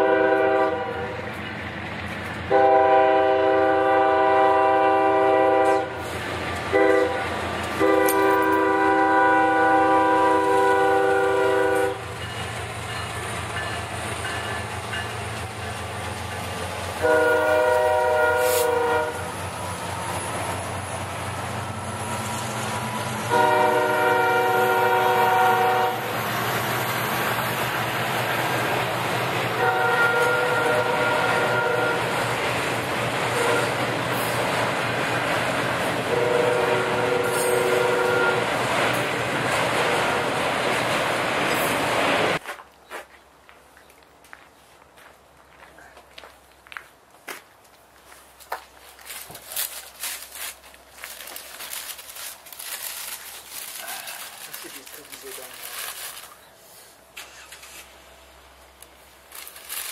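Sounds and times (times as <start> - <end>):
locomotive air horn blasts: 0.0 - 1.2, 2.5 - 6.1, 6.7 - 12.0, 17.0 - 19.3, 23.3 - 26.1, 29.5 - 32.2, 33.3 - 33.8, 36.1 - 38.6
freight cars rumbling on rails: 0.0 - 42.4, 49.0 - 56.4.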